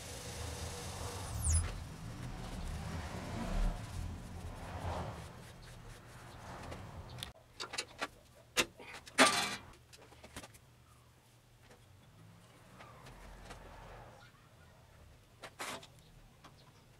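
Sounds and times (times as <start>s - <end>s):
wood lathe humming: 0.0s - 4.4s
harsh scrape: 0.0s - 7.3s.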